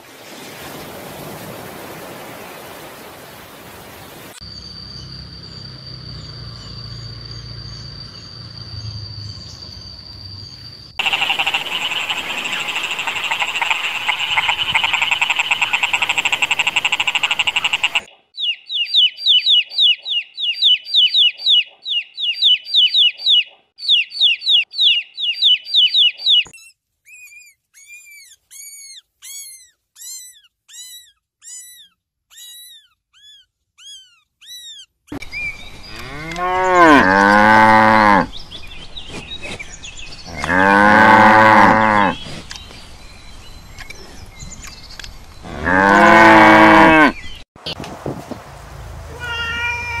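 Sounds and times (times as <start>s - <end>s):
rapid chirping trills: 4.4s - 36.0s
rising-and-falling peeps: 10.9s - 26.5s
croaking chorus: 11.0s - 18.1s.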